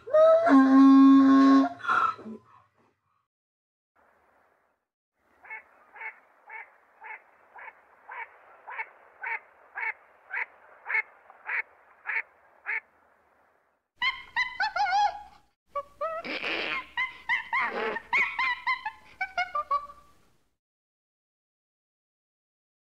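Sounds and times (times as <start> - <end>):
animal call with wavering pitch: 0.0 - 2.4
ducks calling: 5.3 - 13.0.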